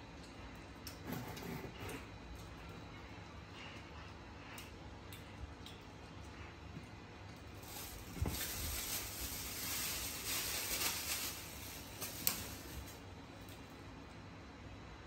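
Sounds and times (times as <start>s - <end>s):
plastic bag rustling: 7.5s - 13.1s.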